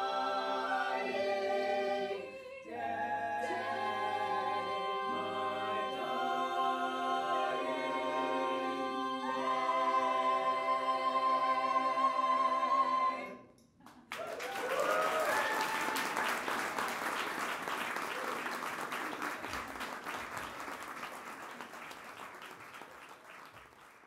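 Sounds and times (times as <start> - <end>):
vocal ensemble holding a chord: 0.0 - 13.5
audience cheers: 14.1 - 16.9, 18.0 - 18.7
audience applause: 14.1 - 24.0.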